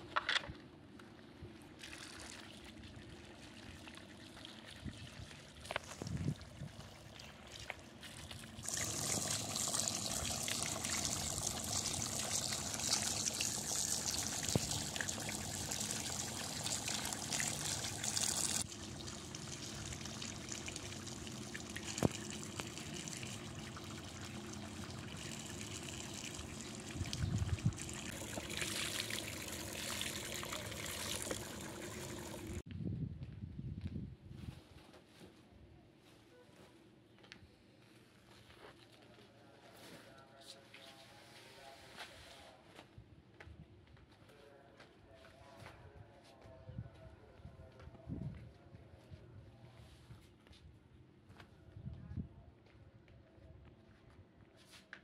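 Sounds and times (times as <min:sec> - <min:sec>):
water pouring and splashing: 0:01.8 - 0:32.6.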